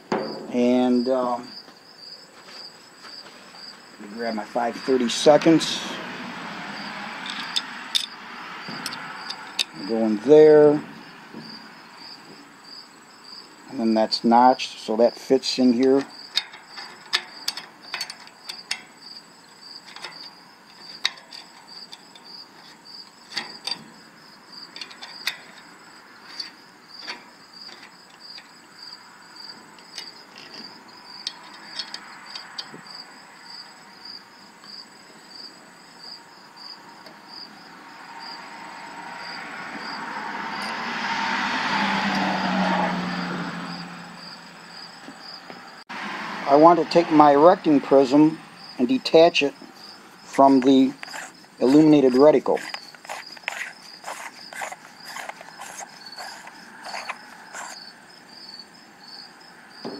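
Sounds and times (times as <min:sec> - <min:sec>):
small metal clicks and taps: 0:15.9 - 0:18.9, 0:19.8 - 0:23.9, 0:24.7 - 0:25.7, 0:31.2 - 0:32.9.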